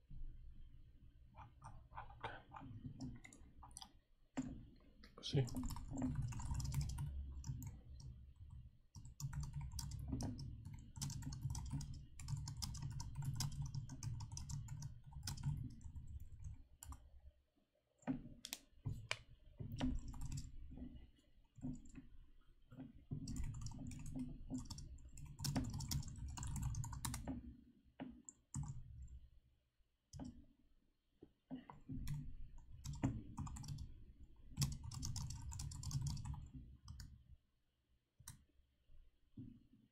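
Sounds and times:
typing on computer keyboard: 5.4 - 17.0, 19.7 - 20.6, 23.2 - 27.4, 28.3 - 29.1, 32.0 - 33.9, 34.6 - 37.1.

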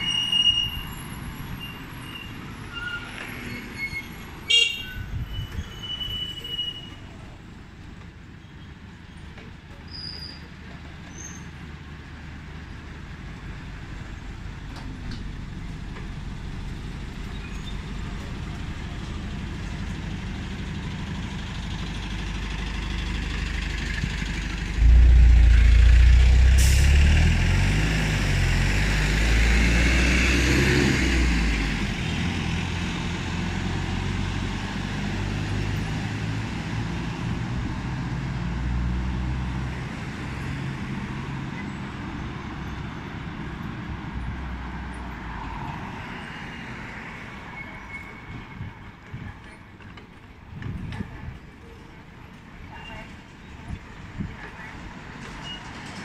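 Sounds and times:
passing traffic rumble and hiss: 6.1 - 56.0
loud low rumble: 24.7 - 28.8.

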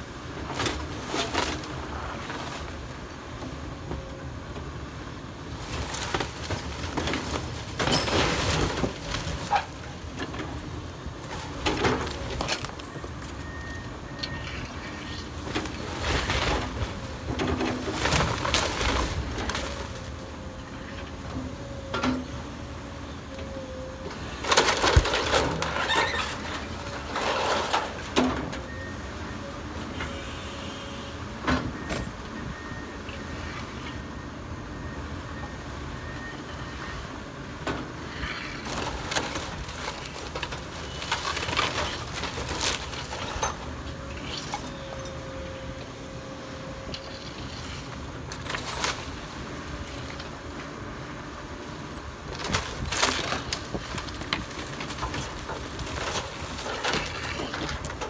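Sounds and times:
excavator diesel engine running: 0.0 - 58.0
wood splintering and debris falling: 5.6 - 10.3, 15.2 - 20.2, 24.4 - 28.4, 38.6 - 44.8, 52.3 - 58.0.

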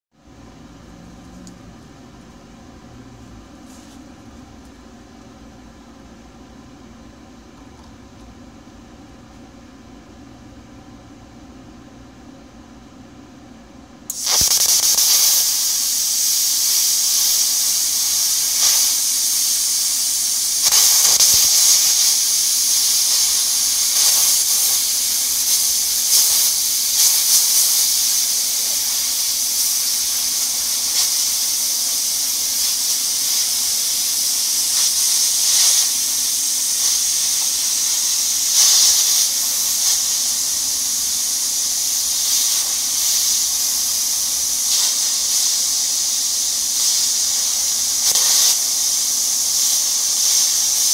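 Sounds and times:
plasma cutter arc hissing: 14.1 - 50.9.

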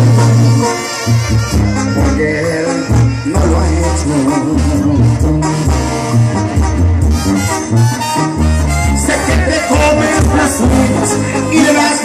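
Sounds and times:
brass and woodwinds playing: 0.0 - 12.0
tuba bass line: 0.0 - 12.0.

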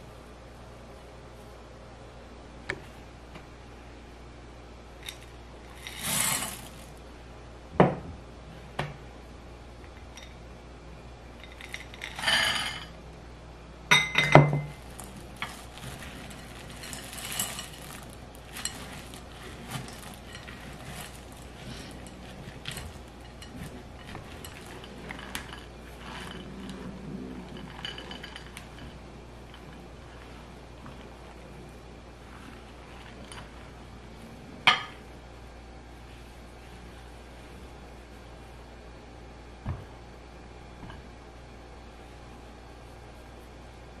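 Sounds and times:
chips rattling into glass bowl: 5.1 - 7.0, 14.7 - 26.8
spatula scraping dough in bowl: 5.1 - 7.0, 14.8 - 34.4.

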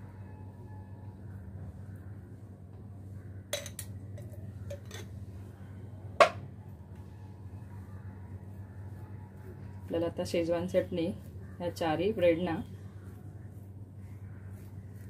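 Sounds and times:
metal spoon clinking on ceramic: 3.6 - 4.0, 4.7 - 5.1.

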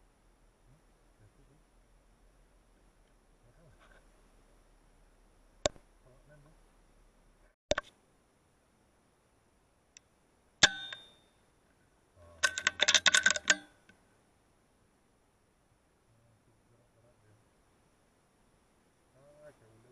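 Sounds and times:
metallic clicks of rifle recocking: 12.4 - 13.8.

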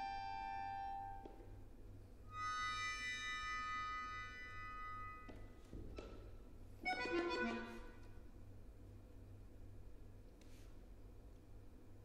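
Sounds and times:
accordion playing: 2.3 - 5.2, 6.8 - 8.0.

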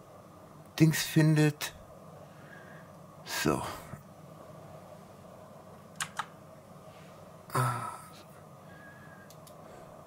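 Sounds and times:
computer mouse clicks: 5.9 - 6.3, 9.2 - 9.6
person sighing or grunting: 7.5 - 8.3.

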